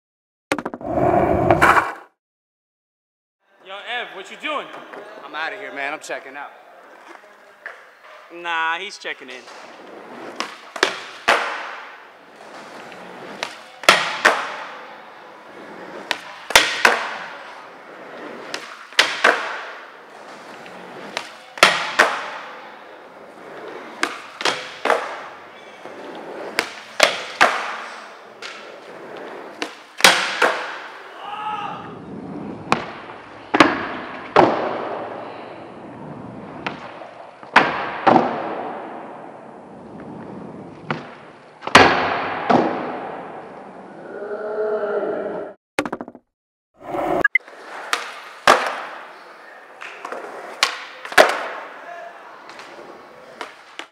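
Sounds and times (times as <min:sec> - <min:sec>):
skateboard rolling: 0:00.5 - 0:02.1, 0:09.4 - 0:31.1, 0:31.8 - 0:44.1, 0:46.8 - 0:51.8, 0:52.4 - 0:53.9.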